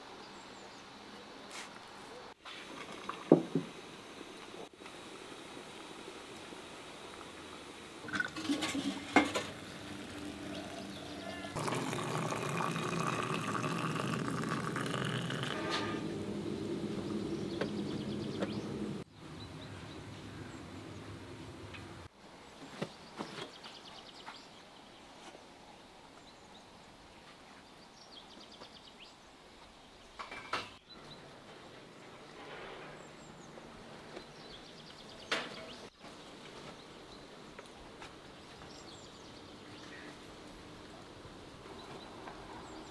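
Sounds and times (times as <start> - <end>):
water running into teapot: 2.6 - 3.7, 8.0 - 16.1
birds chirping: 8.1 - 24.9.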